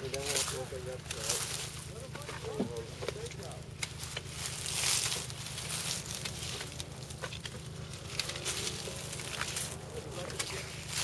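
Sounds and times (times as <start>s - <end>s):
leaves rustling: 0.0s - 11.0s
steady low rumble: 0.0s - 11.0s
sharp clicks of cutting grapes: 3.0s - 4.3s.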